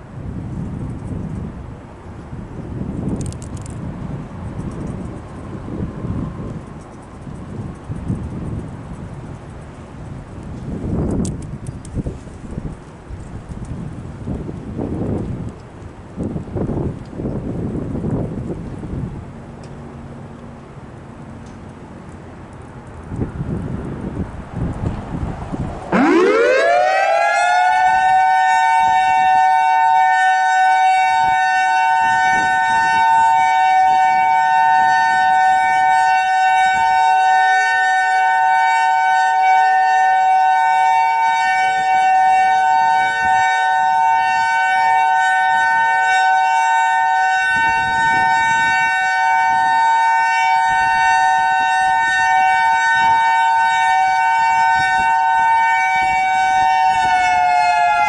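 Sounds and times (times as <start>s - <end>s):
warning siren two-note tone: 25.9s - 58.0s.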